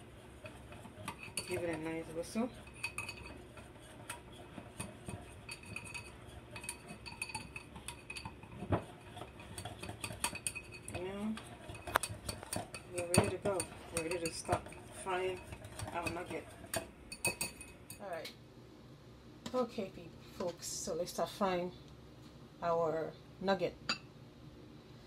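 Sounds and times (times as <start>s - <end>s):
wire whisk beating in a bowl: 0.0s - 18.1s.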